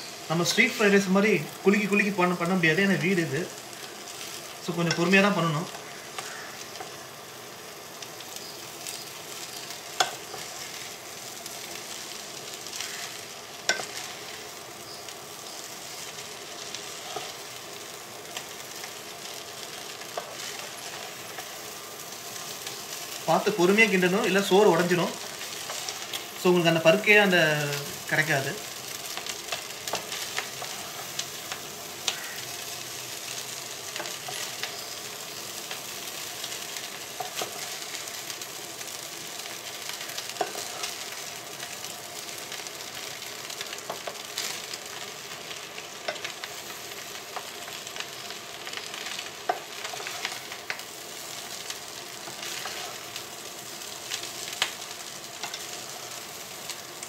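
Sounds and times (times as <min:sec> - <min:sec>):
rice sizzling in hot oil: 0:00.0 - 0:57.0
wooden spatula scraping a pot: 0:52.3 - 0:53.0.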